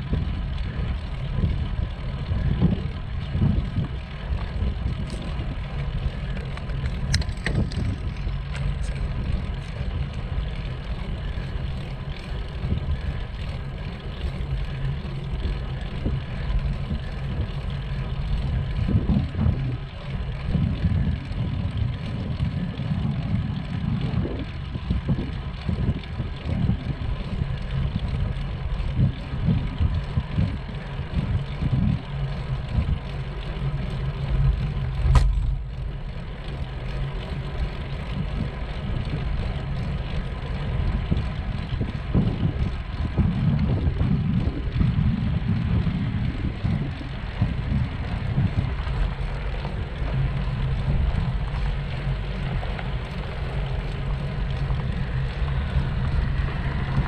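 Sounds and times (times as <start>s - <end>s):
road rumble: 0.0s - 57.0s
wind buffeting microphone: 0.0s - 57.0s
sharp click: 35.0s - 35.6s.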